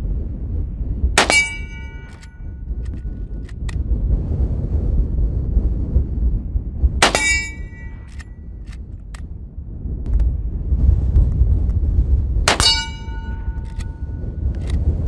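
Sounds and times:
wind on microphone: 0.0s - 15.0s
metal target ringing: 1.2s - 2.7s, 7.0s - 8.4s, 12.5s - 14.3s
rifle shot: 1.2s - 3.7s, 7.0s - 8.3s, 12.5s - 14.8s
rifle lever clicks: 14.6s - 14.8s.

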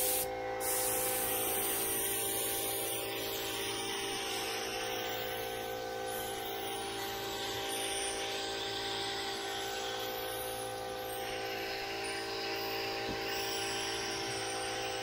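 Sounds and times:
paint spray gun hissing: 0.0s - 1.8s
air compressor motor humming: 0.0s - 5.6s, 7.3s - 15.0s.

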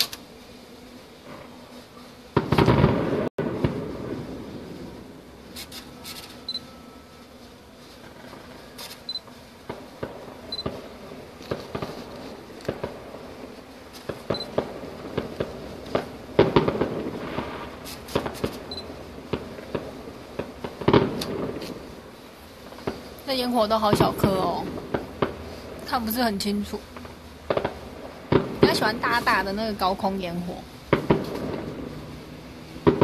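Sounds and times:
distant fireworks popping: 2.3s - 6.3s, 8.0s - 33.0s.

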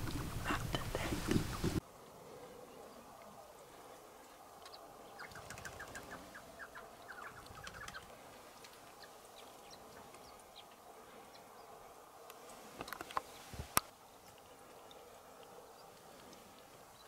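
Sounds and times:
guineafowl calling: 5.2s - 8.1s.

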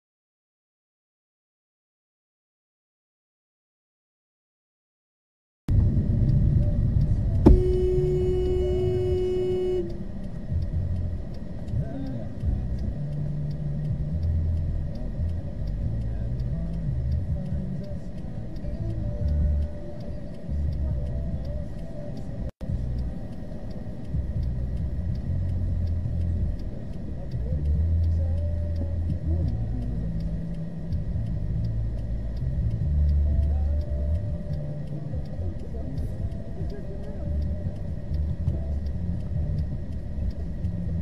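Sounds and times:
car engine and road noise: 5.7s - 41.0s
car horn: 7.4s - 10.2s.

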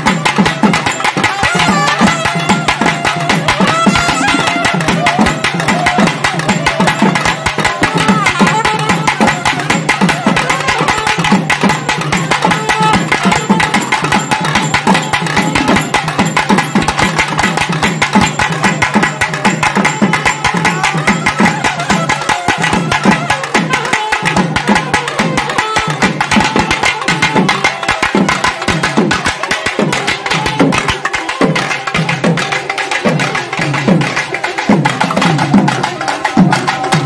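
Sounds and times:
double reed pipe melody: 0.0s - 14.0s, 20.3s - 33.7s
rapid drumming: 0.0s - 37.0s.

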